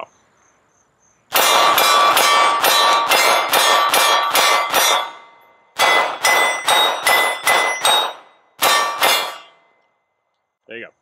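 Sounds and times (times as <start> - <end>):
pistol shots with metallic ring: 1.3 - 9.8.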